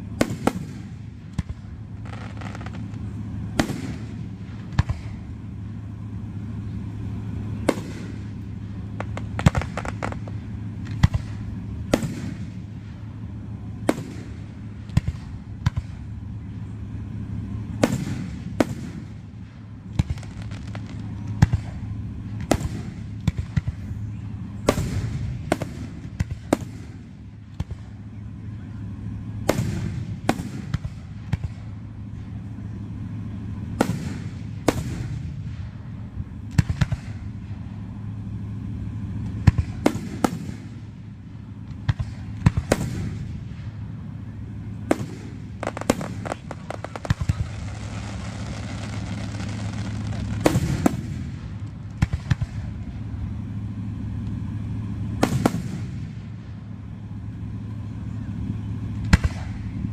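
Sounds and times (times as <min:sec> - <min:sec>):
firework shells bursting: 0:07.6 - 0:13.0, 0:44.9 - 0:53.0.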